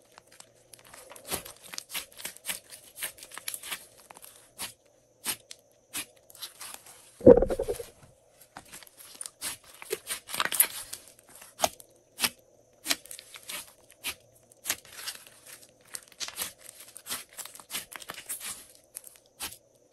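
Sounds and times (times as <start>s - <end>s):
slime squeezed popping: 7.2s - 7.9s.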